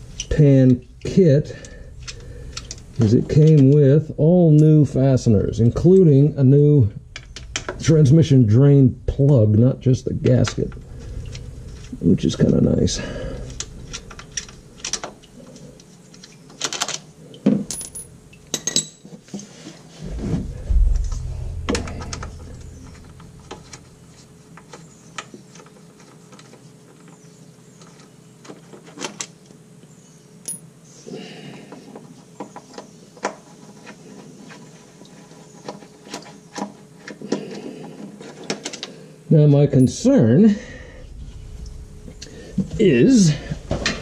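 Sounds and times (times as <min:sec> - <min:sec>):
dull thump: 0:20.0 - 0:24.0.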